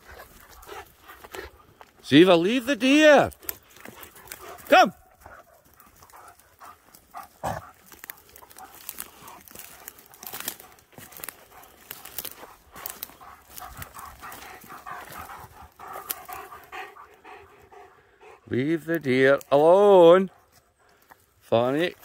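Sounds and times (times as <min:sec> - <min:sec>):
dog panting: 0:00.0 - 0:01.9, 0:03.3 - 0:18.9, 0:20.1 - 0:21.4
footsteps breaking dry twigs: 0:03.3 - 0:16.7, 0:20.5 - 0:22.0.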